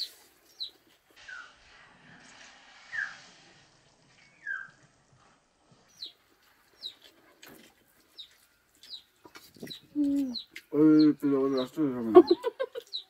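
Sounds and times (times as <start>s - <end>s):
birds chirping: 0.0s - 1.6s, 4.1s - 5.0s, 5.8s - 13.0s.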